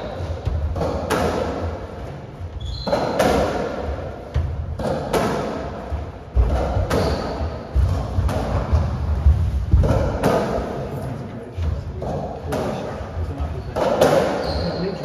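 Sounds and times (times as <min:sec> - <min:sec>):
racquets striking ball: 0:00.0 - 0:01.8, 0:02.6 - 0:10.8, 0:13.8 - 0:14.6.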